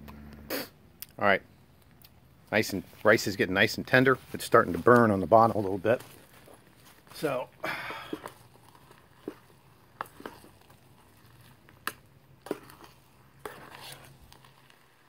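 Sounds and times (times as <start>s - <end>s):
spoon scraping cup bottom: 8.1s - 14.9s.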